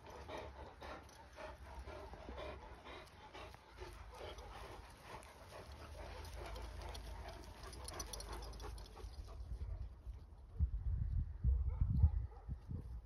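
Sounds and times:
dog panting: 0:00.0 - 0:09.8.

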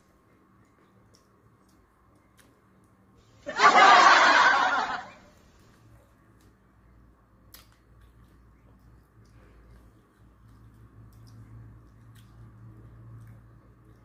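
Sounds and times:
burst of laughter: 0:03.5 - 0:05.2.

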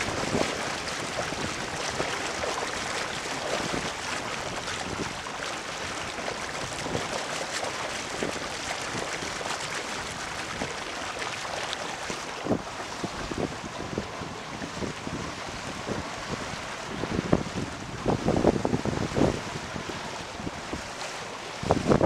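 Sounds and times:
water rushing along boat hull: 0:00.0 - 0:22.0.

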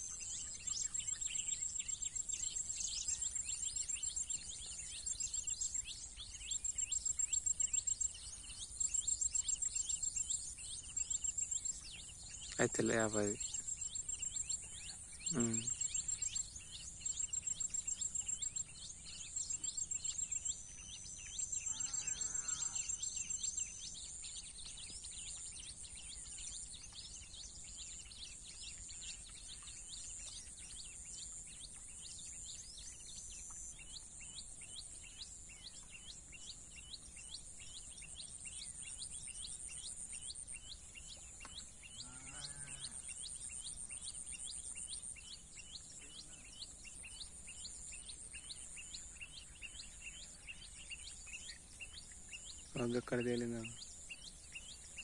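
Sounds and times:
small bird chirps: 0:00.0 - 0:55.0
insects trilling: 0:15.2 - 0:23.8, 0:42.0 - 0:43.2.

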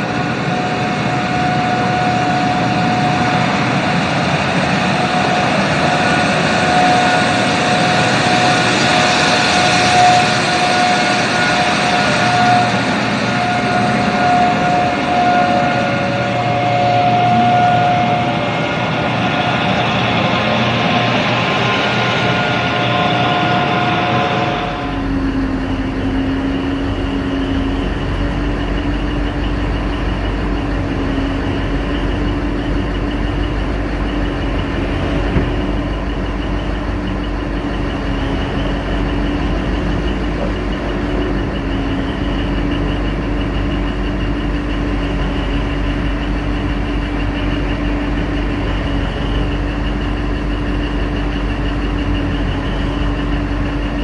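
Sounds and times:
excavator diesel engine rumbling: 0:00.0 - 0:54.0.

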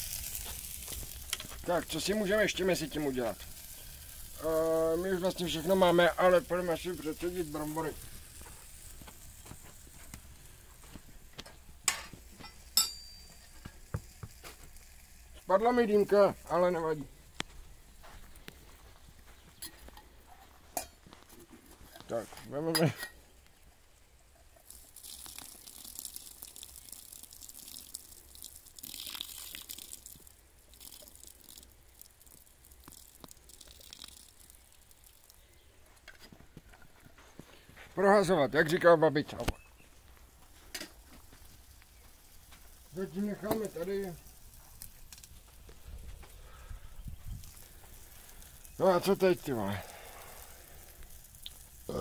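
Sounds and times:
onion sizzling in fat: 0:00.0 - 0:52.0
sharp metallic clinks: 0:11.9 - 0:13.6.

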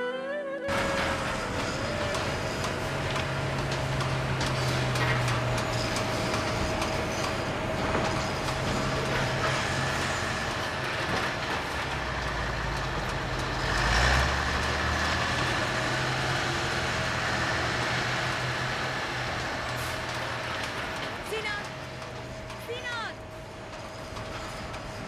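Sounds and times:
construction machinery engine running: 0:00.7 - 0:25.0.

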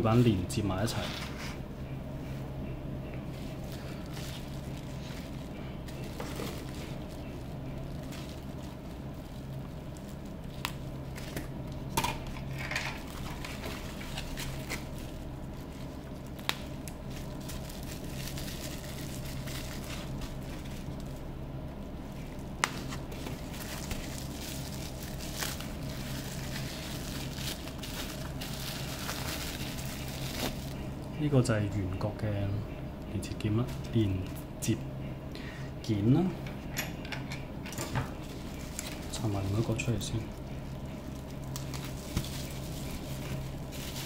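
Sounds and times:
steady low hum: 0:00.0 - 0:44.0
bubble wrap crinkling: 0:03.3 - 0:31.3, 0:38.2 - 0:44.0.

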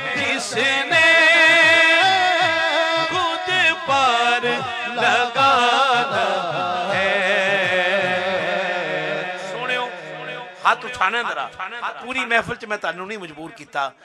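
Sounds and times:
man singing devotional song: 0:00.0 - 0:14.0.

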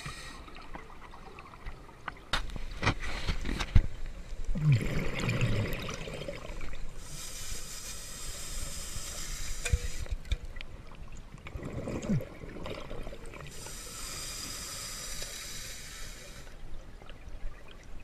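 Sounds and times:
exhaled bubbles burbling: 0:04.5 - 0:06.9, 0:11.4 - 0:13.6
regulator hiss of inhaled gas: 0:07.0 - 0:10.2, 0:13.5 - 0:16.6.

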